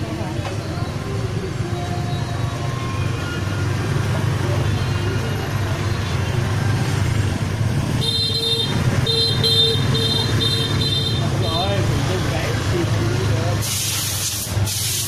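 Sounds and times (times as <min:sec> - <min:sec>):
traffic engine rumble: 0:00.0 - 0:15.0
vehicle horn beeps: 0:07.9 - 0:11.4.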